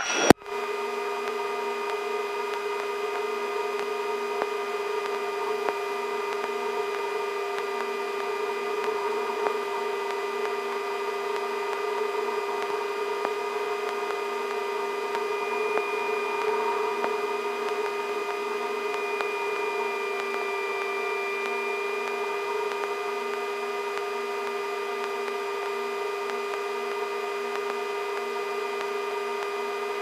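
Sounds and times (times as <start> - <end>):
helicopter engine whine: 0.0 - 30.0.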